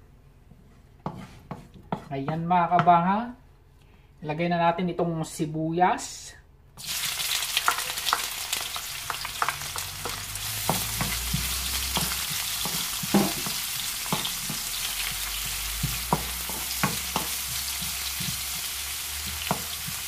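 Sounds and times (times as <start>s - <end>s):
wooden spatula scraping a pan: 0.5s - 2.4s, 10.0s - 20.0s
onions sizzling in oil: 6.8s - 20.0s.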